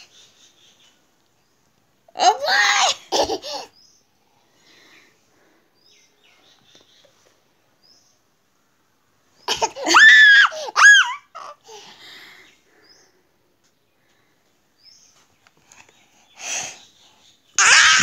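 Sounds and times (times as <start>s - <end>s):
toddler squealing laugh: 9.5s - 11.6s.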